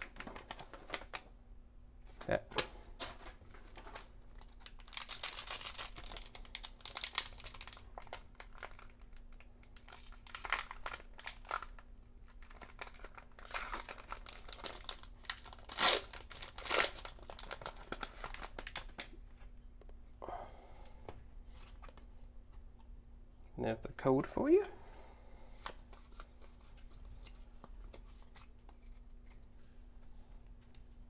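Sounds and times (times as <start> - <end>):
foil wrapper tearing and crinkling: 3.7 - 19.1.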